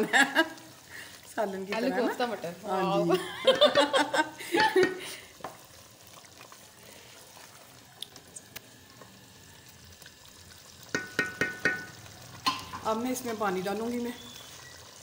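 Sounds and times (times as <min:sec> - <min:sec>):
curry sizzling in a pot: 0:00.0 - 0:15.0
spoon clicking against pot: 0:10.9 - 0:11.9.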